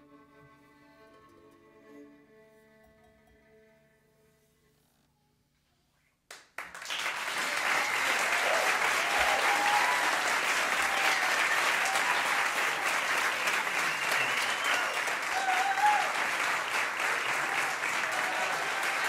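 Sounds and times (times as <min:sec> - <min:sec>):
audience applause: 0:06.3 - 0:19.0
whoops and cheers: 0:07.2 - 0:19.0.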